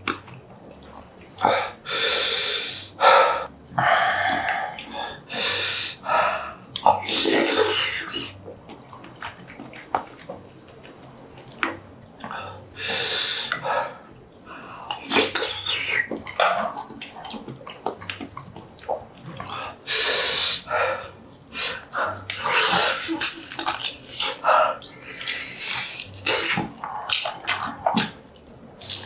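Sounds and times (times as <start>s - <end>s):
chewing: 0.0s - 1.5s, 6.6s - 7.1s, 8.1s - 12.4s, 13.5s - 19.8s, 20.6s - 29.0s
man breathing hard and blowing: 1.4s - 6.6s.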